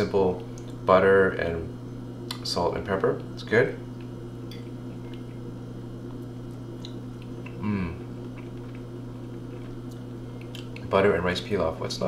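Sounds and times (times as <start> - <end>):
steady low hum: 0.0 - 12.0
person chewing: 6.4 - 10.8.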